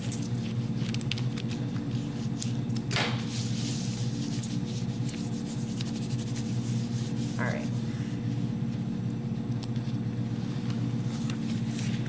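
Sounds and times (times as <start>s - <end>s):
hand rubbing paper: 0.0s - 2.6s, 3.3s - 8.1s
steady low hum: 0.0s - 12.0s.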